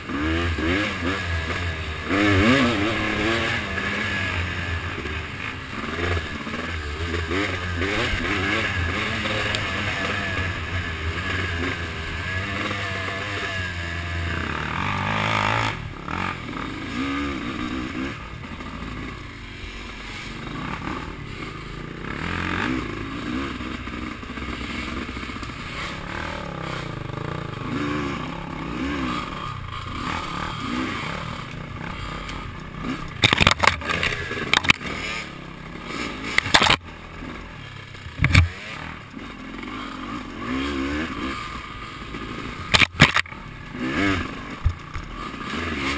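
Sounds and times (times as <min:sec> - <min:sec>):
off-road vehicle engine revving: 0:00.0 - 0:45.9
sharp knocks and clatter: 0:33.2 - 0:35.0, 0:38.0 - 0:38.6, 0:42.7 - 0:43.4.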